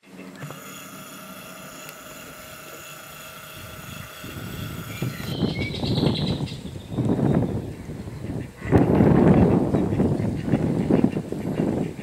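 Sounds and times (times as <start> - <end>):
steady mechanical drone: 0.0 - 12.0
wind buffeting the microphone: 3.1 - 12.0
bird chirps: 3.8 - 7.8.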